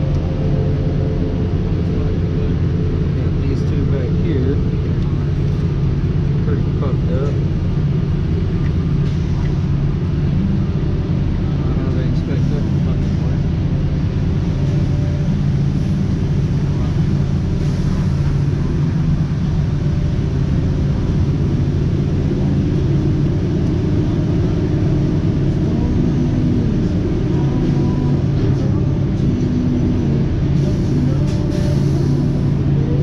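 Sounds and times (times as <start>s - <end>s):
engine running low rumble: 0.0s - 33.0s
faint voices: 11.4s - 19.9s.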